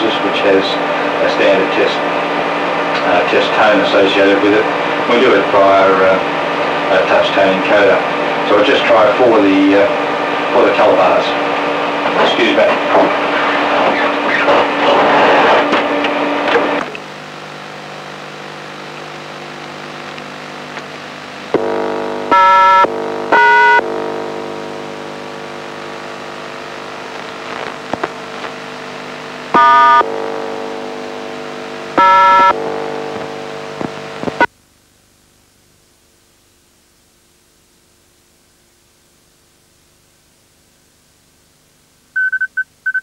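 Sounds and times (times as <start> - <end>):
steady hum: 0.0 - 42.3
touch-tone beeps: 22.3 - 22.8, 23.4 - 23.8, 32.0 - 32.5, 42.2 - 43.0.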